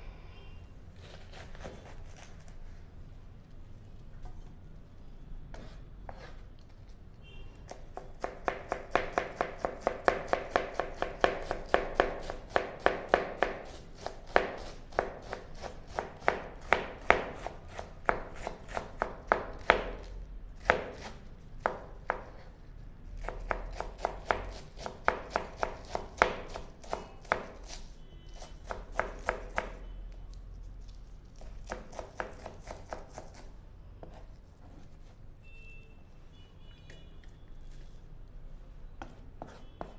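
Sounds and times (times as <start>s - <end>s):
knife chopping cabbage: 1.0s - 2.6s, 7.6s - 35.1s, 39.0s - 39.9s.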